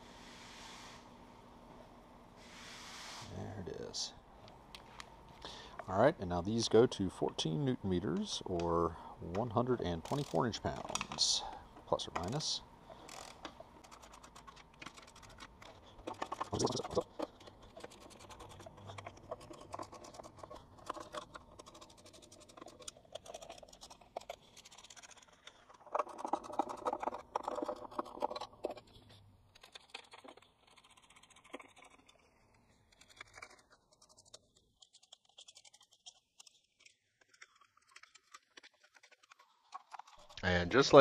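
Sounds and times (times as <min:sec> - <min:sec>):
torque wrench ratchet clicking: 0:13.0 - 0:14.2.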